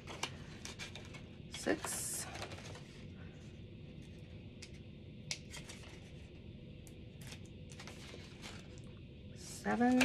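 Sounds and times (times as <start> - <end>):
paper rustling: 0.0 - 3.1, 7.2 - 8.8.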